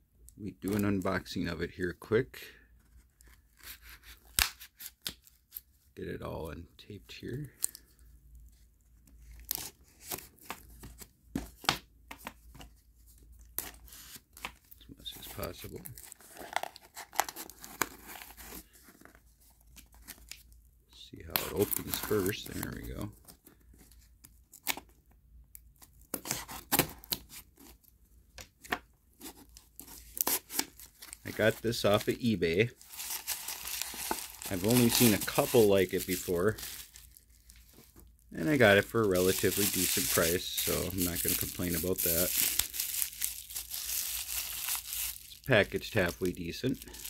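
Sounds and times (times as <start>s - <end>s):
packing tape scraping and ripping: 3.3s - 5.6s, 26.1s - 27.8s, 29.2s - 37.8s, 38.6s - 45.4s.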